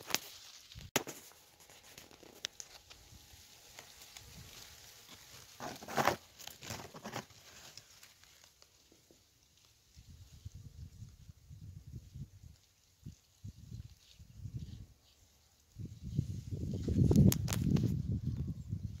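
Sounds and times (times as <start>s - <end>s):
dry leaves rustling: 0.0s - 18.1s.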